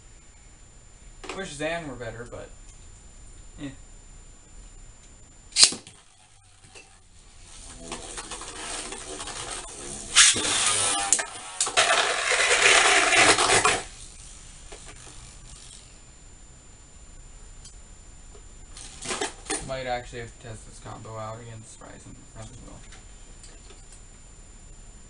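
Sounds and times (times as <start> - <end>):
spinning top launch snap: 5.5 - 6.2, 10.1 - 14.1
spinning tops whirring: 5.6 - 16.0
spinning tops clashing and grinding: 8.0 - 14.1.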